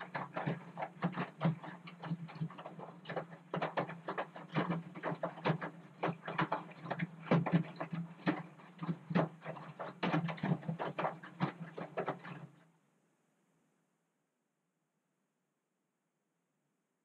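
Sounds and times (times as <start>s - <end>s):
laundry sloshing in washing machine: 0.0s - 12.5s
washing machine motor hum: 0.0s - 12.5s.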